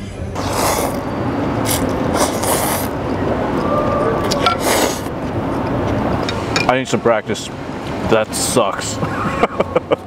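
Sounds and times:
steady background noise: 0.0 - 10.0
man slurping noodles: 0.4 - 3.0, 4.3 - 5.2.

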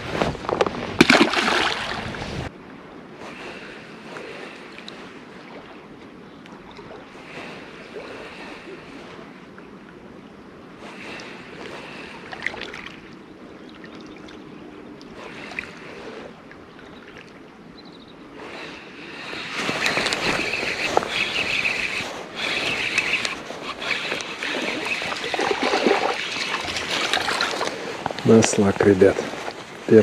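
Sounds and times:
water sloshing and splashing: 0.0 - 2.5, 11.1 - 17.6, 19.3 - 29.9.

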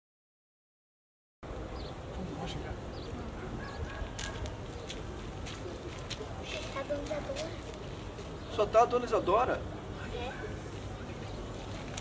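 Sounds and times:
birds chirping and calling: 1.5 - 9.3.

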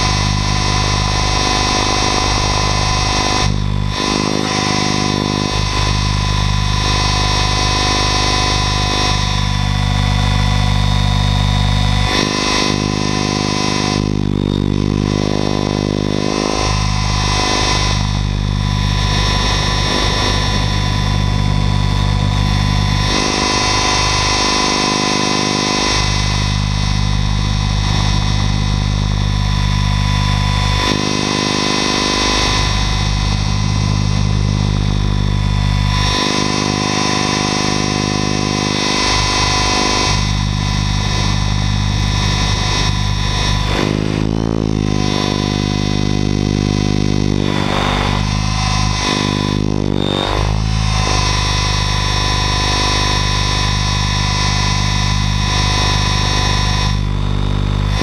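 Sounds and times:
rc helicopter rotor whine: 0.0 - 58.0.

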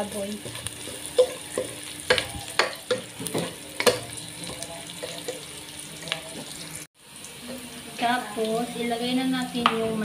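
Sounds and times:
onions sizzling in oil: 0.0 - 10.0
metal ladle knocking and scraping pan: 0.4 - 4.1.

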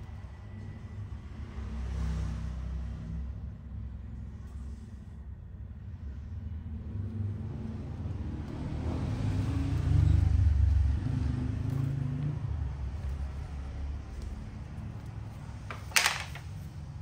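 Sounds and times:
vehicle engine passing: 0.5 - 3.9, 5.9 - 15.7.

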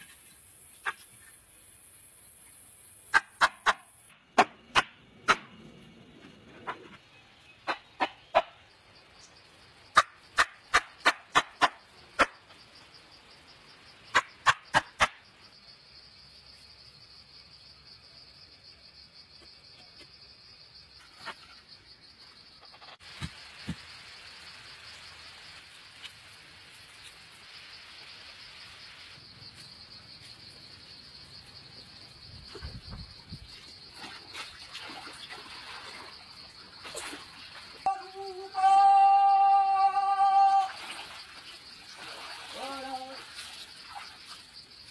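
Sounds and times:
rustles: 20.9 - 37.9
high-pitched insect drone: 37.8 - 41.0.

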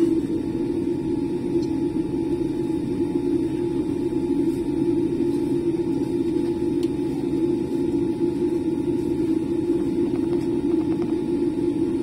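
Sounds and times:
aircraft cabin low rumble: 0.0 - 12.0
faint steady whine: 0.0 - 12.0.

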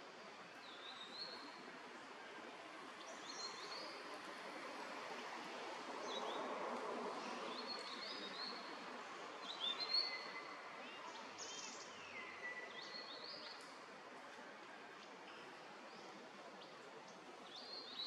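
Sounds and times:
birds singing whistled notes: 9.4 - 13.6.

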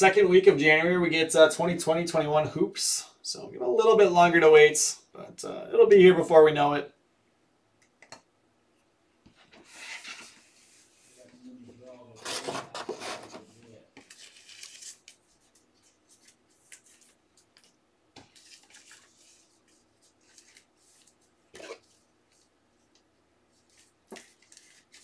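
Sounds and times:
soft clicks and taps: 7.8 - 8.3.

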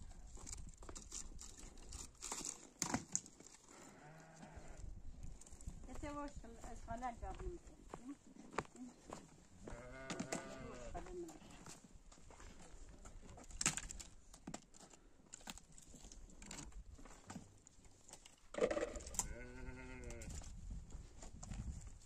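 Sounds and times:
sheep bleating: 3.8 - 4.8, 9.6 - 11.0, 19.2 - 20.3.

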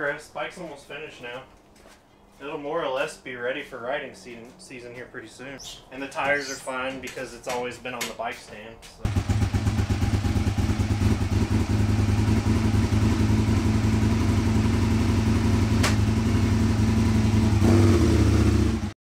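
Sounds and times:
motorcycle engine running: 9.0 - 18.9.

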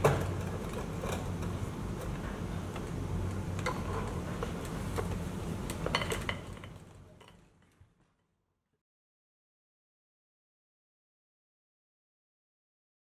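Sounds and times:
steady low hum: 0.0 - 8.0.

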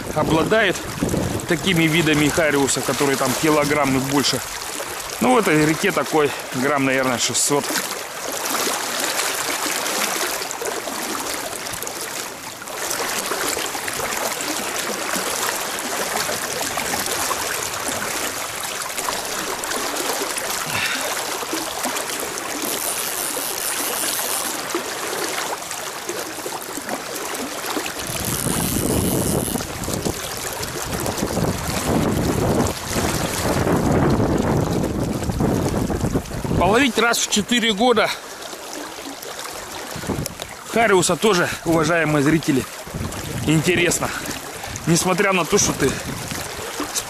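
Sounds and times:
wind buffeting microphone: 0.0 - 5.1, 28.0 - 37.0, 39.9 - 40.6, 42.4 - 45.1, 45.7 - 47.0
river water rushing: 0.0 - 47.0.

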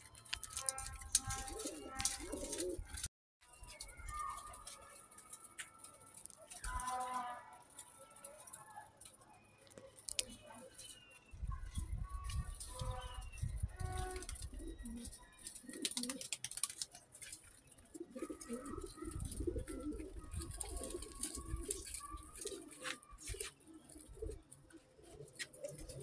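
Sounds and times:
pigeons cooing: 1.1 - 3.0, 12.6 - 16.8, 17.7 - 26.0.

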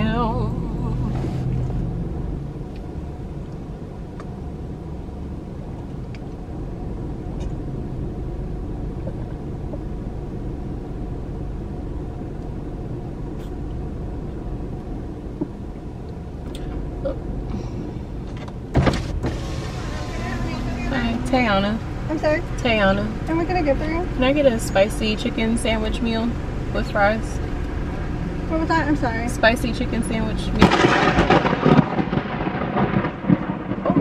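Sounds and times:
car engine rumble inside cabin: 0.0 - 34.0.

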